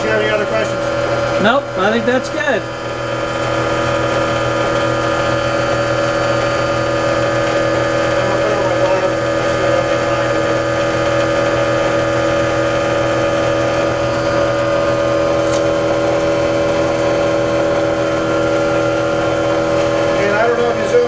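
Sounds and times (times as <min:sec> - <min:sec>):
generator humming: 0:00.0 - 0:21.0.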